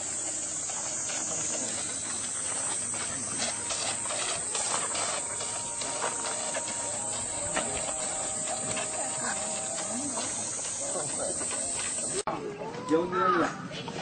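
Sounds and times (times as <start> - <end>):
recording hiss: 0.0 - 12.3.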